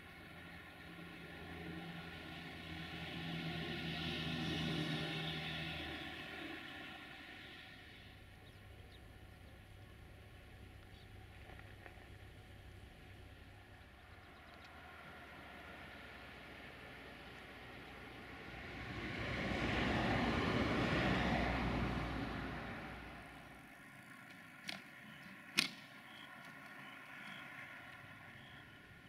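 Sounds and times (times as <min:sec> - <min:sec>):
vehicle passing close by: 0:00.3 - 0:09.6, 0:13.9 - 0:24.2
faint low rumble: 0:05.7 - 0:29.0
faint ticks: 0:14.2 - 0:14.8
sharp clicks: 0:24.2 - 0:27.4.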